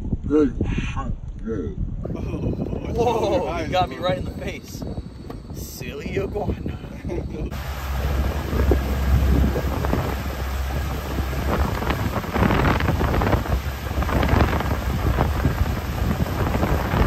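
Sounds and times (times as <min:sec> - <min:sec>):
wind buffeting microphone: 0:00.0 - 0:17.0
outboard motor droning: 0:06.9 - 0:17.0.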